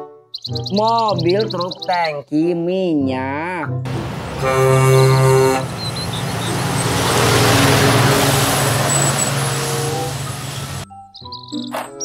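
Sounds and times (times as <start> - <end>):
tanker lorry driving past: 3.9 - 10.8.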